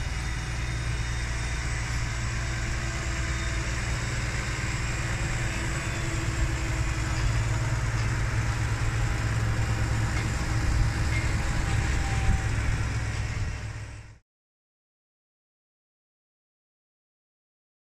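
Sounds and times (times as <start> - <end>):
tractor engine rumbling: 0.0 - 14.2.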